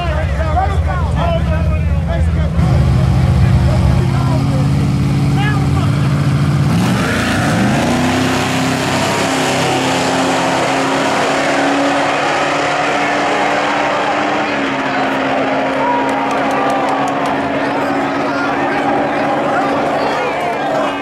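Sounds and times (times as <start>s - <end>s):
drag car engine revving: 0.0s - 21.0s.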